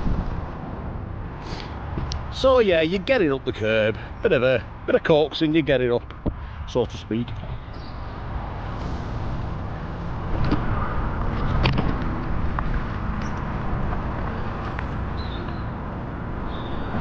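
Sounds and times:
wind on camera: 0:00.0 - 0:01.0, 0:07.2 - 0:15.8
rolling bike tyres on tarmac: 0:07.5 - 0:17.0.

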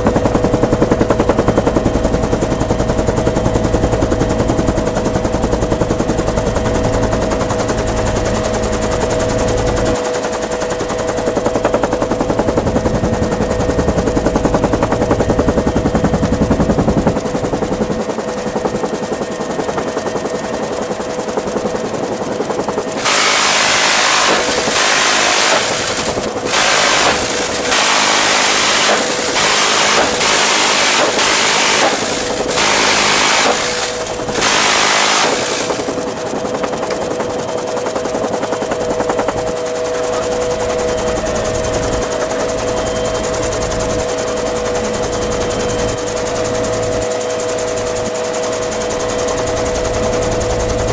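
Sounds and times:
helicopter drone in flight: 0:00.0 - 0:50.9
minigun firing short bursts: 0:23.0 - 0:36.1.

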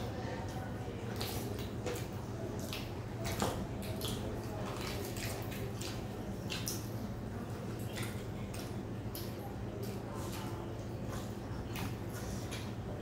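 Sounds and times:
wet chewing and mouth clicks: 0:07.8 - 0:12.8.

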